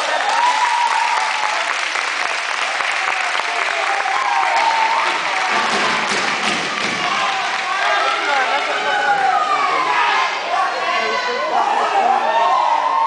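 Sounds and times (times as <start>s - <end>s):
shouted cheers: 0.0s - 2.0s, 2.6s - 13.0s
audience clapping: 0.0s - 9.6s.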